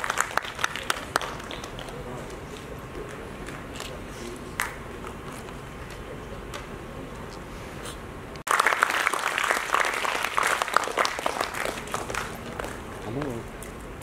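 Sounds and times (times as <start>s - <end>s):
audience applauding: 0.0s - 2.0s, 8.5s - 13.4s.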